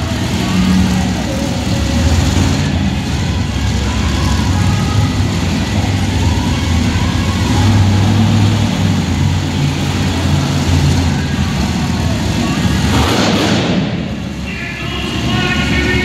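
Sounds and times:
truck engine low rumble: 0:00.0 - 0:16.0.

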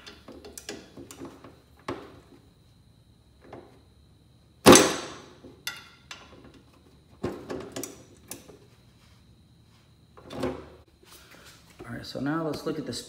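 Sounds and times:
loud metallic clank: 0:04.7 - 0:05.9.

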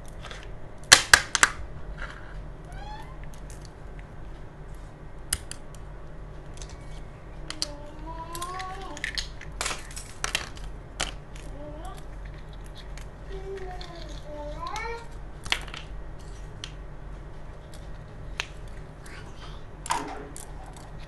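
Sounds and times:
plastic toy pieces clacking: 0:07.5 - 0:15.9.

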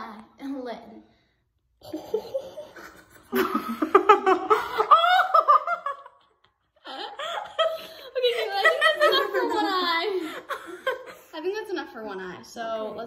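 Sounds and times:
girls laughing: 0:01.8 - 0:11.4.

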